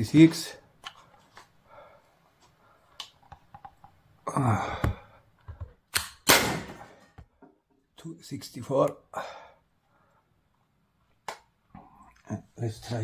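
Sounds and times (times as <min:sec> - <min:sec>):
air pistol shot: 0:06.0 - 0:06.9.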